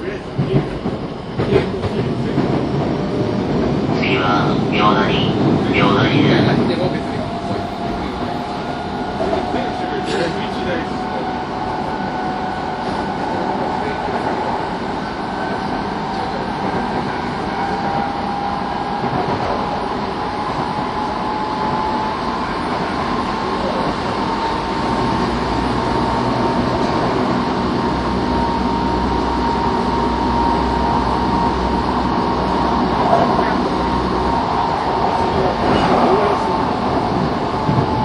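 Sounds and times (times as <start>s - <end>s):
train wheels rumbling on rail: 0.0s - 38.0s.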